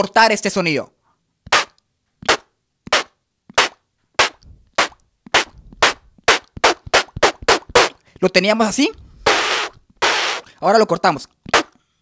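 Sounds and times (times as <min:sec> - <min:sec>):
beatboxed lip snare hits: 0:01.4 - 0:08.0, 0:09.2 - 0:10.5, 0:11.2 - 0:11.8.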